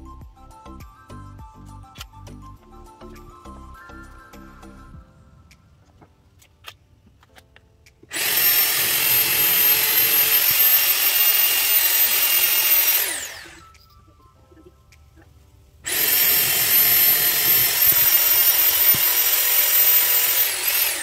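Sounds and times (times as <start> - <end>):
electric drill boring into wall: 8.1 - 13.7, 15.9 - 21.0.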